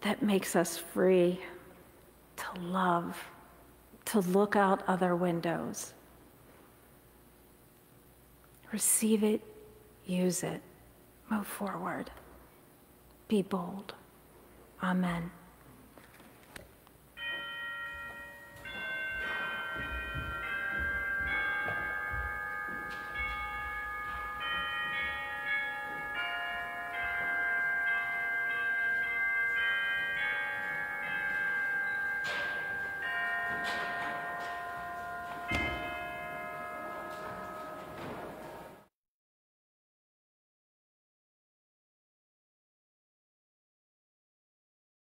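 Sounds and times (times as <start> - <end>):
church organ chords: 17.2 - 38.9
soft bumps: 17.4 - 25.2.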